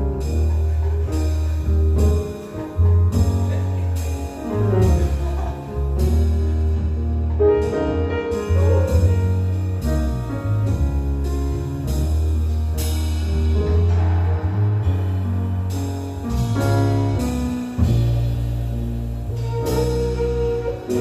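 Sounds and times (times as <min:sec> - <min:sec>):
drum kit and cymbals: 0:00.0 - 0:21.0
electric bass guitar: 0:00.0 - 0:21.0
grand piano chords: 0:00.0 - 0:21.0.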